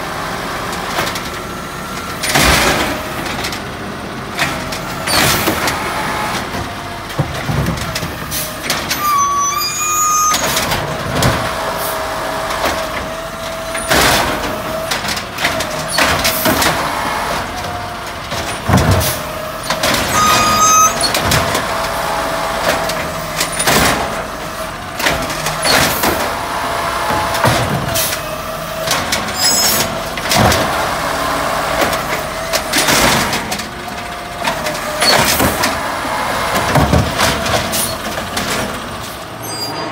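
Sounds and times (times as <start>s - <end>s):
carts clanking and banging: 4.4s - 39.9s
hydraulic whine: 8.7s - 11.0s, 19.0s - 21.7s, 29.1s - 30.0s
high squeals: 8.9s - 10.8s, 19.6s - 21.3s, 29.3s - 30.0s, 39.3s - 39.9s.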